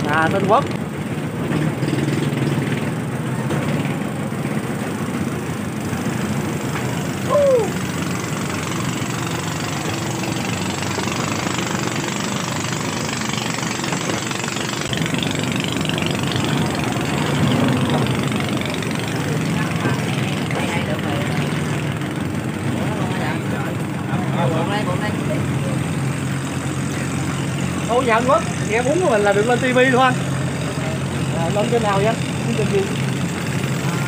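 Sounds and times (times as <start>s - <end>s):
boat engine running: 0.0s - 34.0s
short falling whistle: 7.3s - 7.7s.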